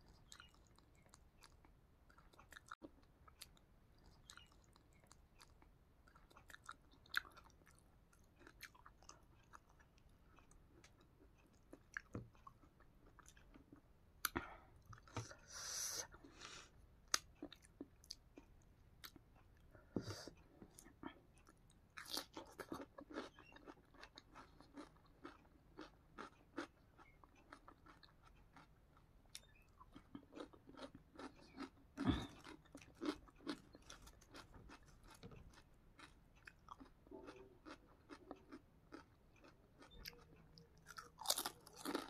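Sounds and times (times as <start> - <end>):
person crunching potato chips: 22.0 - 26.7, 29.9 - 40.2, 40.8 - 42.0.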